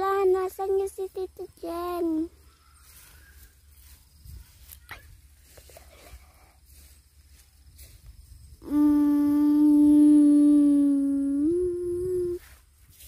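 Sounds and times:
person humming a long note: 0:08.6 - 0:12.4.

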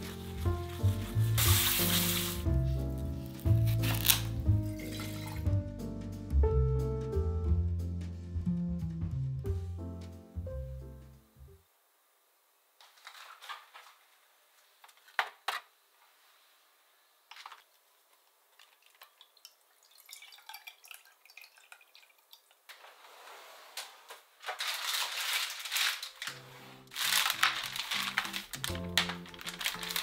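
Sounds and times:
background music: 0:00.0 - 0:11.6, 0:26.2 - 0:30.0
liquid pouring into plastic jug: 0:18.6 - 0:22.6.

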